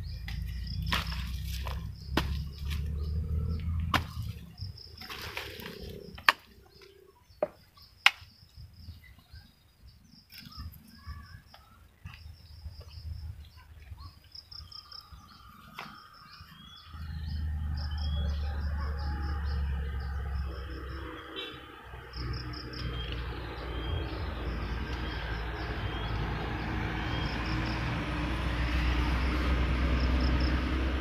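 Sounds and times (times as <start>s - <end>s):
insects chirping: 0.0s - 31.0s
hand tool striking soil: 0.2s - 6.6s.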